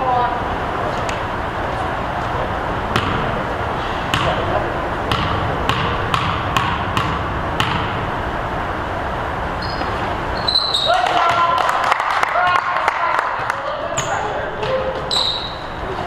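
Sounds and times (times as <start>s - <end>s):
basketball bouncing on gym floor: 2.9s - 3.4s, 4.1s - 8.0s, 11.1s - 11.6s, 13.4s - 15.2s
murmur of voices: 11.0s - 16.0s.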